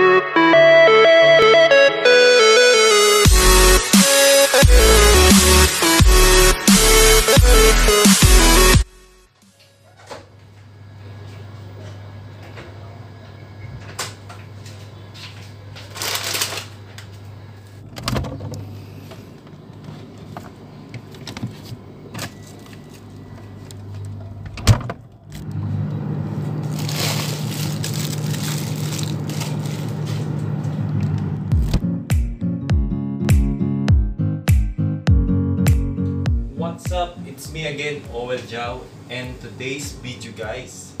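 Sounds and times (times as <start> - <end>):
refrigerator humming: 9.6 - 31.8
packaging rustling: 15.8 - 16.8, 26.6 - 30.3.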